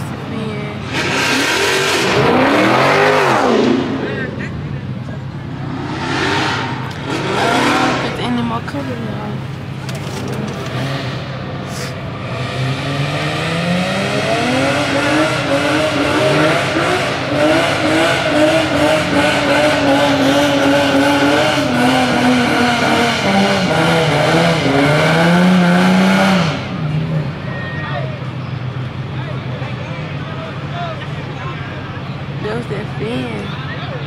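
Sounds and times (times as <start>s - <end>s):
car engine revving: 0.0s - 27.6s
tire squeal: 5.6s - 8.4s.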